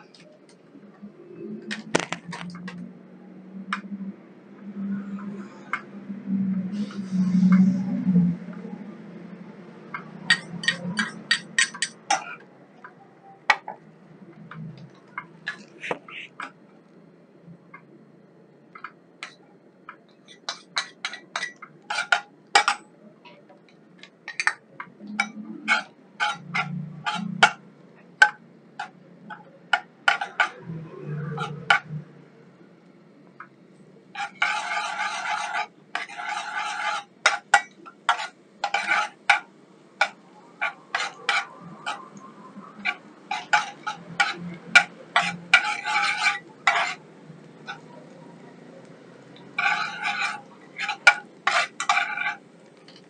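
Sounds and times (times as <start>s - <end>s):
metal spatula scraping frying pan: 6.7s - 8.1s, 10.0s - 12.4s, 20.3s - 22.8s, 24.0s - 27.6s, 28.2s - 32.0s, 34.1s - 47.0s, 47.6s - 48.2s, 49.4s - 53.0s.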